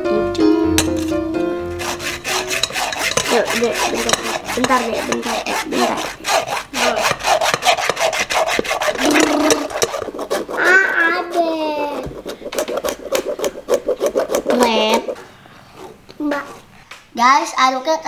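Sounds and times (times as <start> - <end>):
spoon scraping metal strainer: 0.8 - 15.2.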